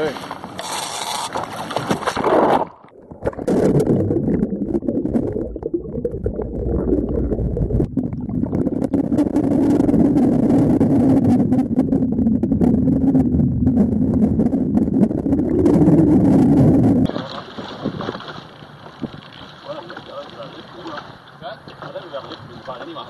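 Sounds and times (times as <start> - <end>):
boat engine humming underwater: 0.3 - 22.4
underwater rushing water: 1.7 - 19.8.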